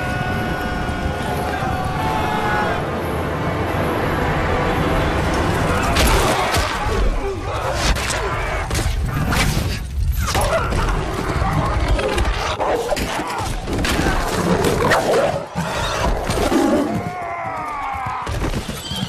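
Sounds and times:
galloping horses: 0:15.6 - 0:19.0.

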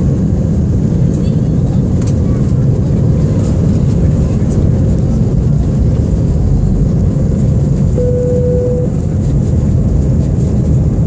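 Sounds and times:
jet engines rumbling: 0:00.0 - 0:11.0
cabin tone: 0:08.0 - 0:09.0.

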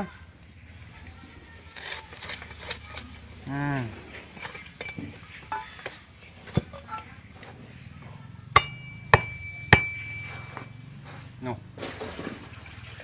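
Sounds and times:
light knocks and scrapes: 0:00.7 - 0:07.8, 0:09.8 - 0:12.9.

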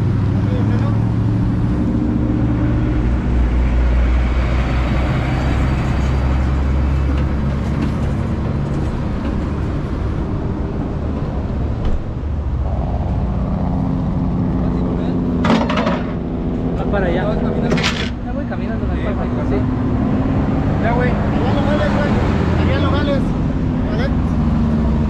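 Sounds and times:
road noise: 0:00.0 - 0:25.0.

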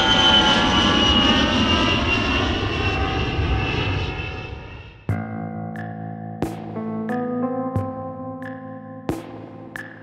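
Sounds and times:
jet airliner passing: 0:00.0 - 0:05.1.

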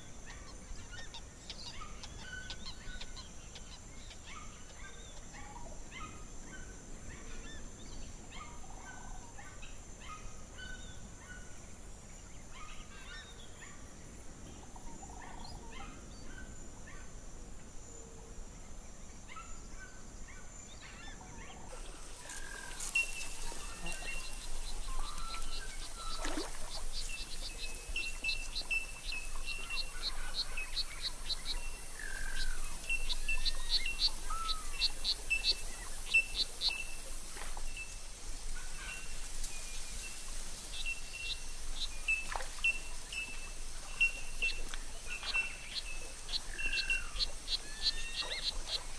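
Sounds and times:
birds chirping and calling: 0:21.0 - 0:37.7, 0:40.0 - 0:48.9.

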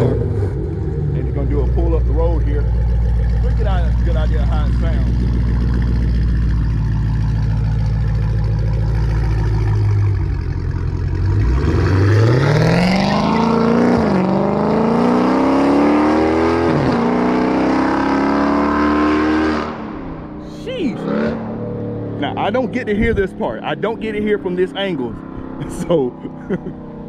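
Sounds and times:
car engine idling: 0:00.0 - 0:14.1
car engine accelerating hard: 0:00.0 - 0:20.2.

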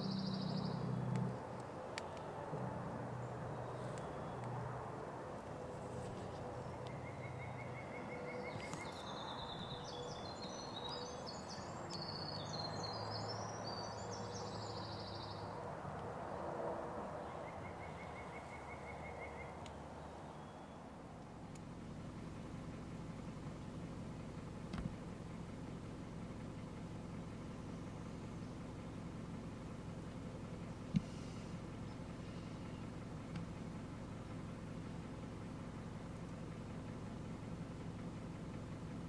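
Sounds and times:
high-pitched bird song: 0:00.0 - 0:00.9, 0:06.6 - 0:15.5, 0:17.3 - 0:20.8
low bird trill: 0:00.0 - 0:00.9
wind in woods: 0:00.0 - 0:37.8.

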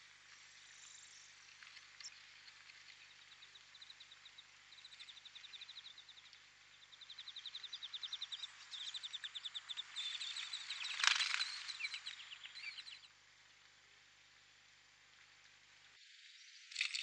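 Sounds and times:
nestlings begging chirps: 0:03.2 - 0:13.1
brief crackle: 0:10.8 - 0:12.2, 0:16.7 - 0:17.0.

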